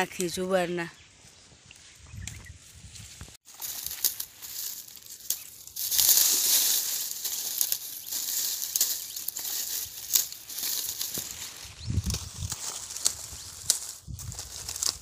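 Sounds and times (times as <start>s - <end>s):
dry stalks rustling and crackling: 0.0s - 15.0s
stalks snapping: 3.6s - 15.0s.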